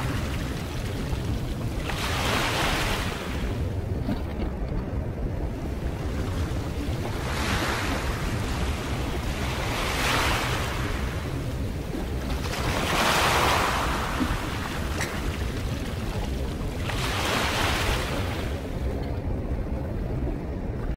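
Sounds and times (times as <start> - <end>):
small waves washing against rocks: 5.8 - 18.7.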